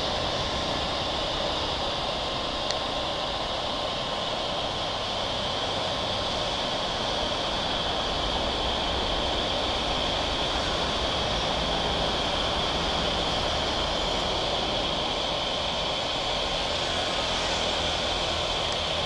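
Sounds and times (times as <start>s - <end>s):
jet engine rushing: 0.0s - 19.0s.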